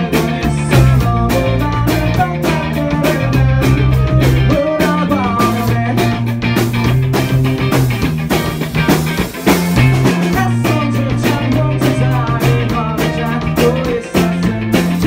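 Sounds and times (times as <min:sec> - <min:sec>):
man singing into microphone: 0:00.0 - 0:06.2, 0:10.3 - 0:15.0
bass line: 0:00.0 - 0:15.0
drum hits: 0:00.0 - 0:15.0
electric guitars: 0:00.0 - 0:15.0.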